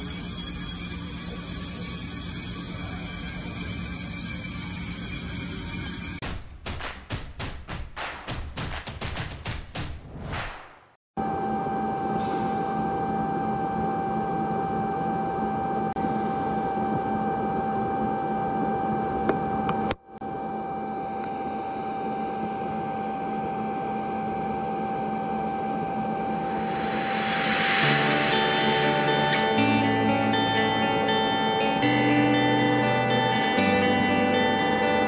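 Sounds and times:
music: 26.4 - 35.0.

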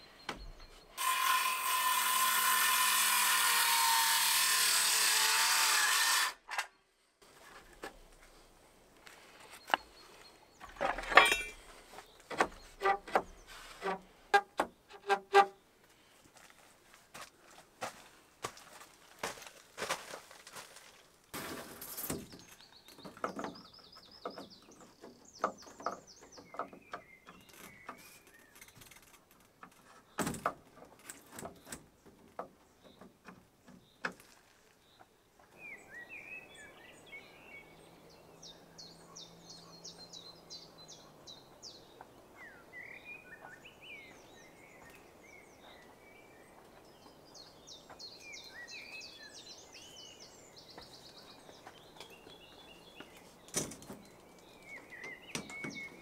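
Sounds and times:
small birds chirping: 9.1 - 13.8, 22.2 - 29.0, 31.1 - 56.0.

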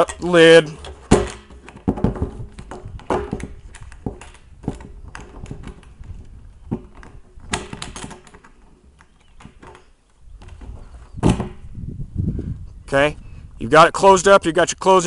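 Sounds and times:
lid and metal hinges clicking: 0.0 - 11.7.

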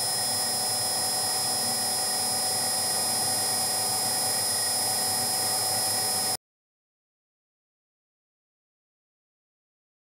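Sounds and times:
mill-drill motor whining: 0.0 - 6.4.

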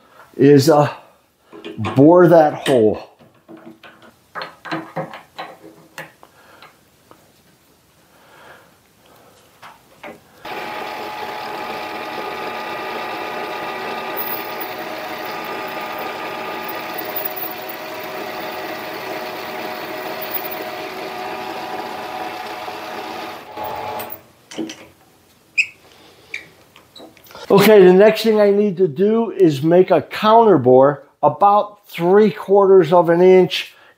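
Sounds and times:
lathe whine: 10.5 - 24.2.

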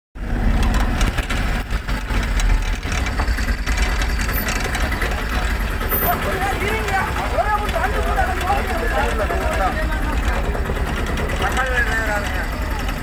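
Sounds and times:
vehicle engine idling: 0.2 - 13.0
knocks and handling noise: 0.5 - 5.6.

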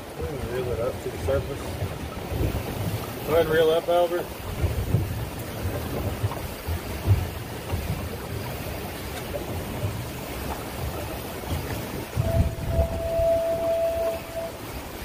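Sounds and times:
water rushing around boat: 0.0 - 15.0
wind buffeting microphone: 0.0 - 15.0
low thumps: 4.4 - 8.7, 9.3 - 14.8.

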